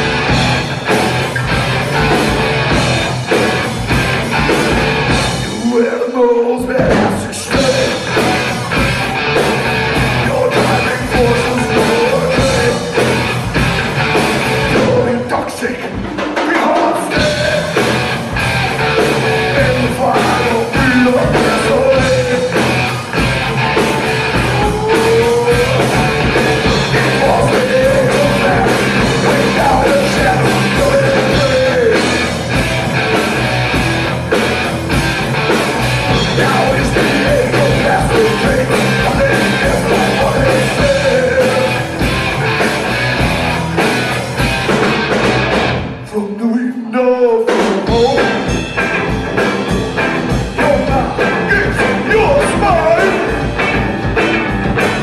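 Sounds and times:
drum kit: 0.0 - 5.9, 6.6 - 46.1, 47.4 - 55.0
bass guitar: 0.0 - 46.2, 47.4 - 55.0
electric guitar: 0.0 - 46.2, 47.5 - 55.0
person singing: 5.5 - 8.7, 10.1 - 13.2, 14.6 - 18.1, 18.9 - 32.5, 36.1 - 42.0, 46.0 - 48.6, 49.7 - 53.7.

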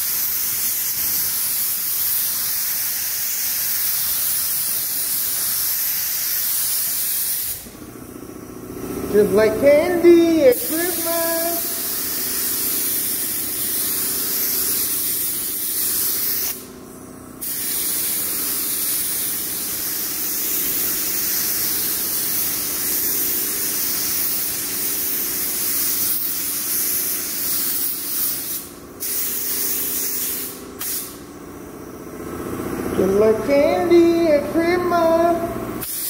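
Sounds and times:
spray gun hissing: 0.0 - 8.4, 9.1 - 16.7, 17.4 - 31.2, 35.8 - 36.0
steady low hum: 7.6 - 35.9.

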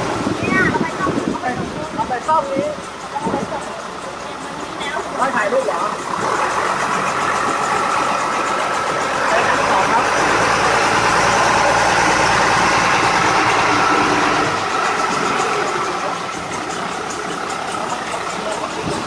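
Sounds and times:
water rushing past hull: 0.0 - 3.5
boat engine running: 0.0 - 19.0.

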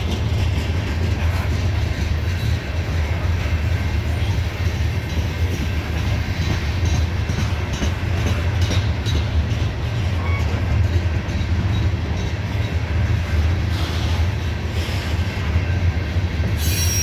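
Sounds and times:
train wheels rumbling on rails: 0.0 - 17.0
faint wheel squeals: 16.6 - 17.0.

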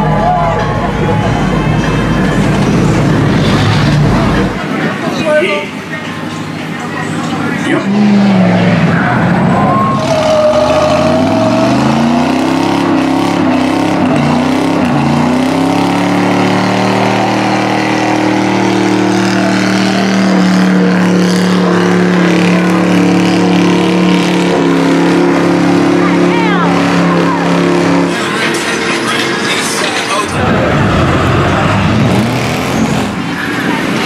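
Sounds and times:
engine revving: 0.0 - 5.1, 5.8 - 34.0
tyres squealing on pavement: 0.0 - 34.0.

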